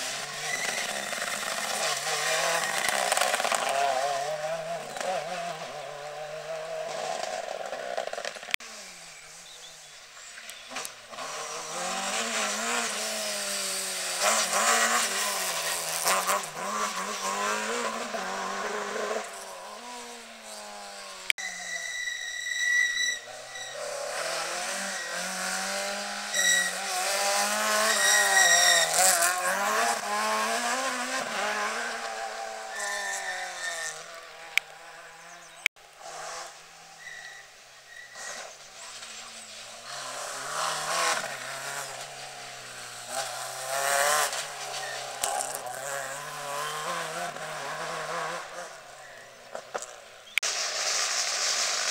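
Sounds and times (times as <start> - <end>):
rally car engines revving: 0.0 - 51.9
short shrill tones: 21.4 - 24.1, 24.7 - 27.1, 27.8 - 29.4, 32.4 - 34.1, 36.9 - 38.4.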